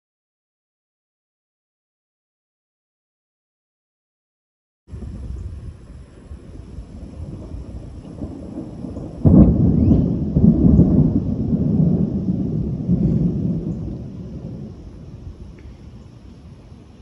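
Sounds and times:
thunder clap and rumble: 0:04.9 - 0:17.0.

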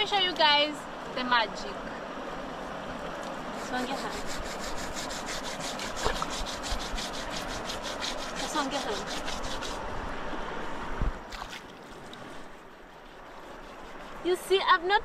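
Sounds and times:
leaves scrubbing on wet skin: 0:03.2 - 0:09.8, 0:11.5 - 0:15.0.

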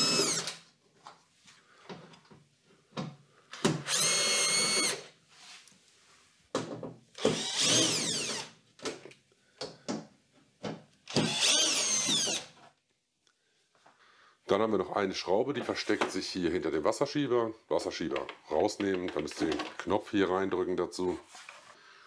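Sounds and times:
cordless drill motor whining: 0:00.0 - 0:00.6, 0:03.8 - 0:05.0, 0:07.2 - 0:08.5, 0:11.1 - 0:12.5.

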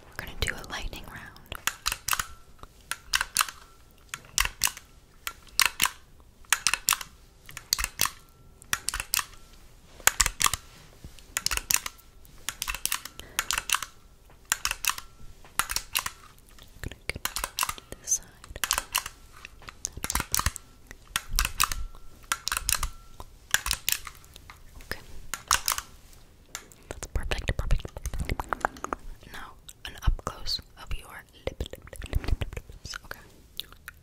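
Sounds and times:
camera shutter clicks: 0:01.6 - 0:03.7, 0:04.4 - 0:09.4, 0:10.0 - 0:10.6, 0:11.4 - 0:16.2, 0:20.0 - 0:24.2, 0:25.3 - 0:25.9.

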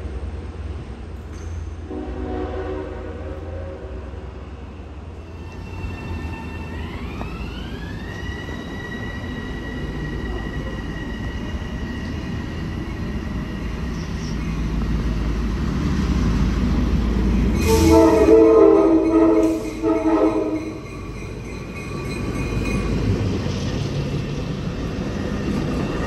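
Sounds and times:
diesel locomotives rumbling: 0:00.0 - 0:26.0
locomotive multi-note horn: 0:01.9 - 0:04.2, 0:17.6 - 0:20.8.

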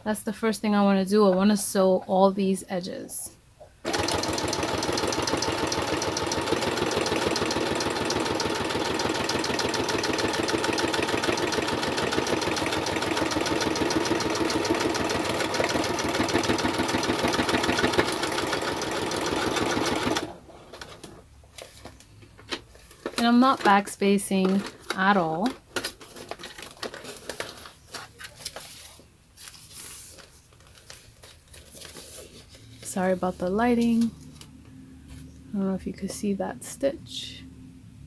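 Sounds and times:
sewing machine stitching paper: 0:03.8 - 0:20.4.

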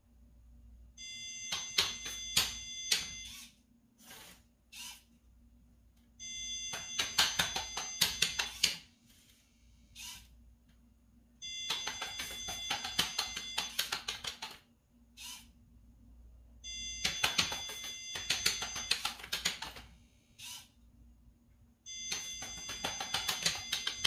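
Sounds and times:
buzzer beeping: 0:01.0 - 0:03.6, 0:06.2 - 0:08.6, 0:11.4 - 0:13.9, 0:16.6 - 0:19.2, 0:21.9 - 0:24.0
servo motor buzzing: 0:04.2 - 0:05.1, 0:10.0 - 0:10.3, 0:15.2 - 0:15.5.

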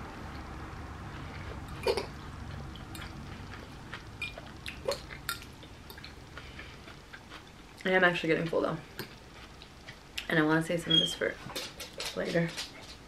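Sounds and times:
low steady hum: 0:00.0 - 0:13.0
wet chewing: 0:01.2 - 0:10.3.

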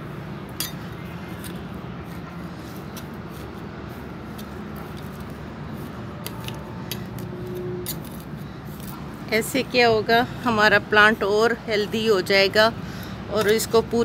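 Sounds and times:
light clicks and scrapes: 0:01.4 - 0:09.1.

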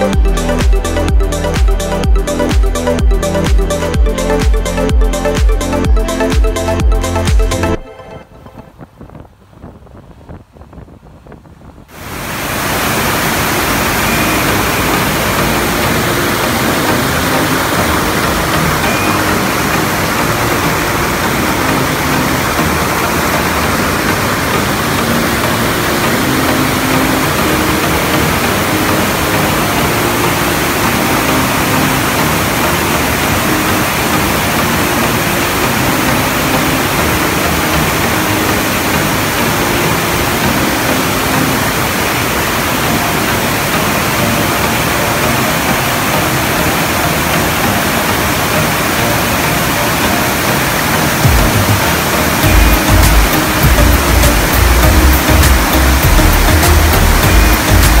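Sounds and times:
river rushing over boulders: 0:11.9 - 0:58.0.

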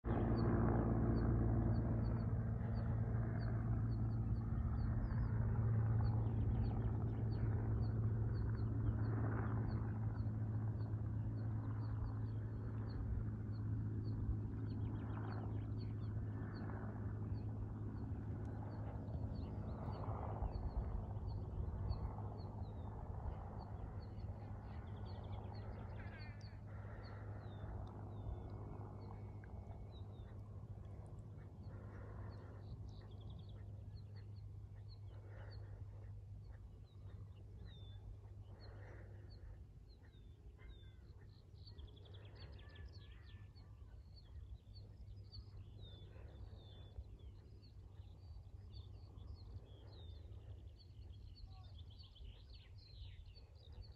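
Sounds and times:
low mechanical hum: 0:00.1 - 0:53.9
harsh bird calls: 0:22.7 - 0:53.9.

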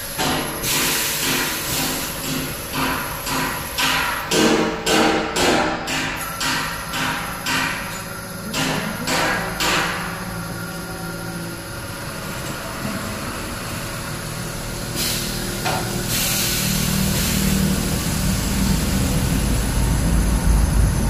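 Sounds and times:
hiss: 0:00.0 - 0:04.1, 0:14.9 - 0:20.4.

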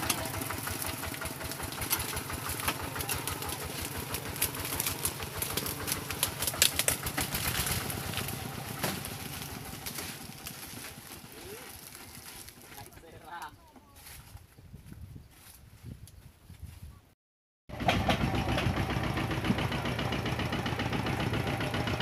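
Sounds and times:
diesel engine running: 0:00.0 - 0:12.6, 0:17.7 - 0:22.0.

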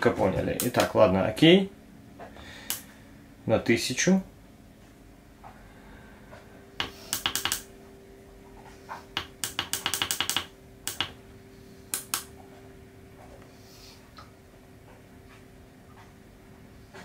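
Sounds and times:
faint steady hum: 0:00.0 - 0:17.0
keypad button clicks: 0:06.8 - 0:07.6.

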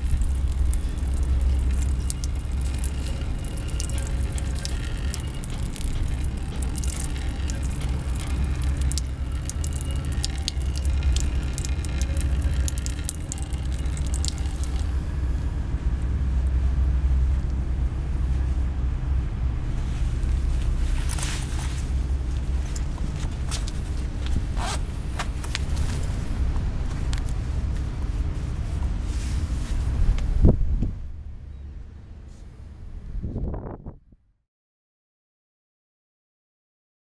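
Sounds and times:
urine splashing and dripping: 0:00.0 - 0:15.0
low rumble: 0:00.0 - 0:34.2.

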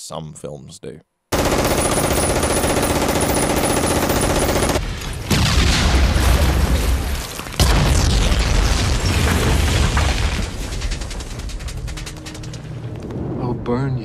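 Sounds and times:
machine-gun fire: 0:01.3 - 0:06.8
explosion with deep rumble: 0:04.8 - 0:11.5, 0:12.7 - 0:14.0.

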